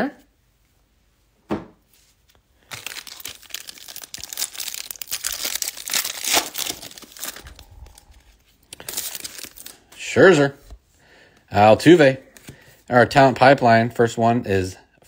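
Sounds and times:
foil wrapper crinkling: 0:02.6 - 0:09.9.

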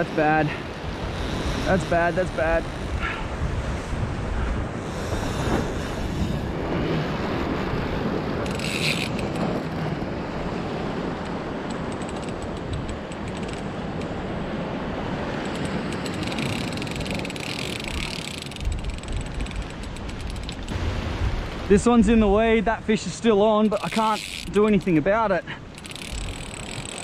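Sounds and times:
wind buffeting microphone: 0:00.0 - 0:27.0
fishing reel clicking and whirring: 0:08.4 - 0:09.8, 0:11.7 - 0:13.7, 0:15.4 - 0:20.7, 0:23.7 - 0:25.0, 0:25.7 - 0:27.0.

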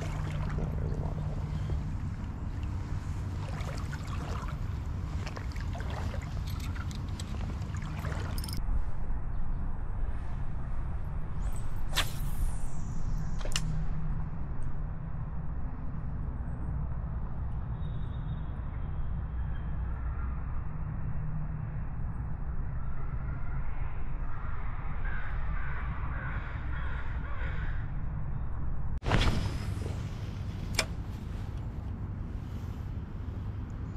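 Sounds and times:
moving water and wind rumble: 0:00.0 - 0:17.8, 0:28.8 - 0:33.9
fishing rod swish: 0:11.8 - 0:13.7.

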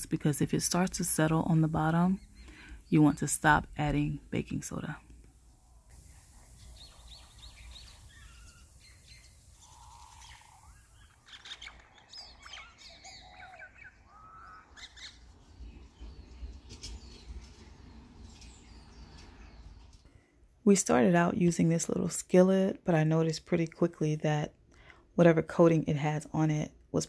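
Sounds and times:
faint birds chirping: 0:00.0 - 0:20.4
low outdoor background: 0:00.0 - 0:27.0.

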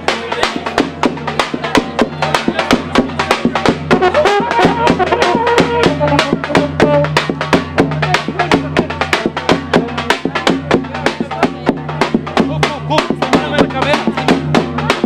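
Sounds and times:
bass drum beat: 0:00.0 - 0:15.0
brass band playing: 0:03.2 - 0:08.9
trumpet and horn melody: 0:03.8 - 0:08.2.

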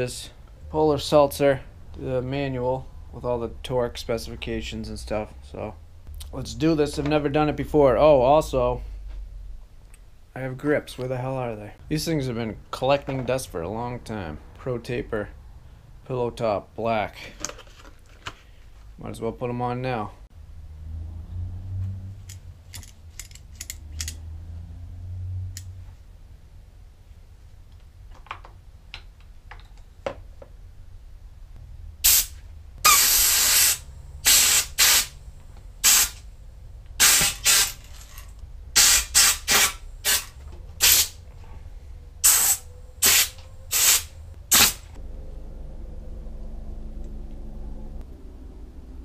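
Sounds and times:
hissing spray blasts: 0:32.0 - 0:35.2, 0:35.8 - 0:36.2, 0:38.8 - 0:41.2, 0:42.2 - 0:44.9.

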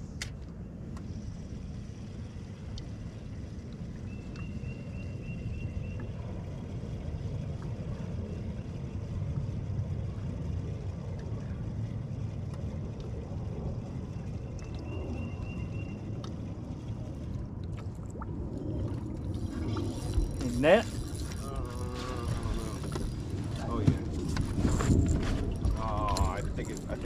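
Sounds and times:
boat engine rumble: 0:00.0 - 0:27.0
water against hull: 0:00.2 - 0:27.0
wind buffeting: 0:18.2 - 0:27.0.

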